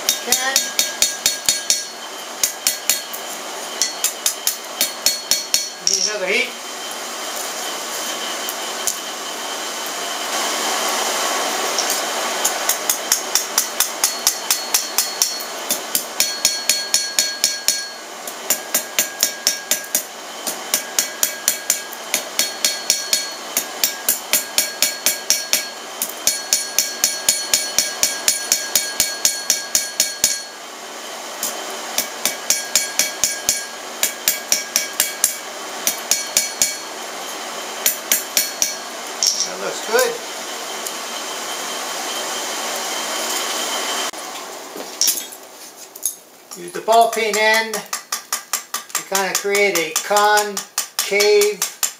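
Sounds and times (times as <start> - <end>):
hammer striking steel on anvil: 0.0 - 3.2, 3.8 - 6.3, 11.8 - 30.6, 31.4 - 36.9, 37.8 - 40.1, 46.8 - 51.9.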